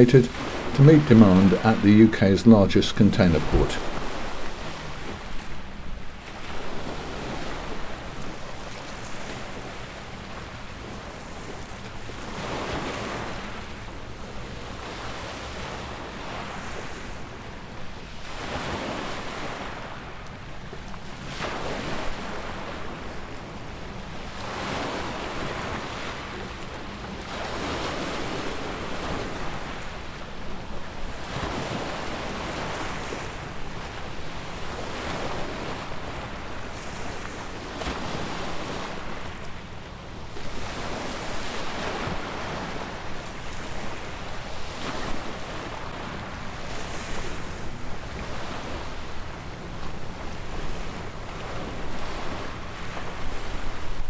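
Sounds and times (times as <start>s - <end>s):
small waves washing ashore: 0.0s - 54.0s
wind rumble on microphone: 30.6s - 54.0s.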